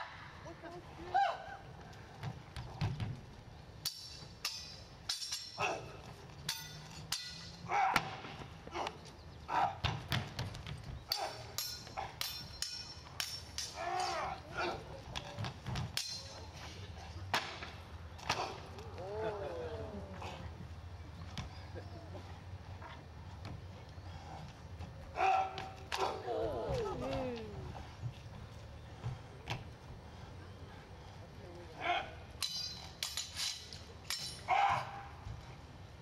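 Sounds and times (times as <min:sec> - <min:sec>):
swords clashing with metallic clang: 0:03.8 - 0:08.1, 0:11.1 - 0:14.8, 0:15.9 - 0:16.6, 0:32.4 - 0:34.9.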